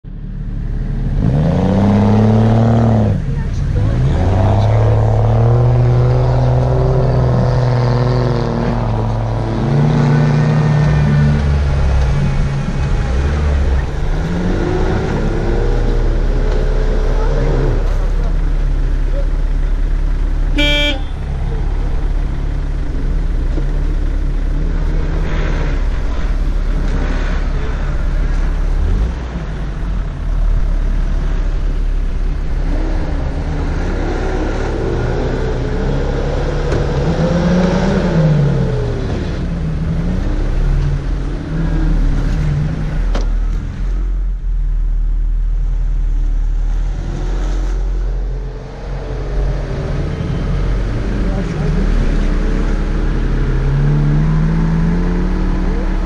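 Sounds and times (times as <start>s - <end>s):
low engine drone: 0.0s - 56.0s
engine revving: 0.7s - 44.4s, 45.7s - 56.0s.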